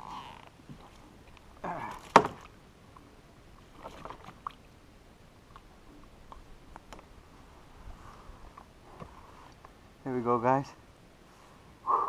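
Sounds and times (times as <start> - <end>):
soft wet rustling: 0.0 - 9.9.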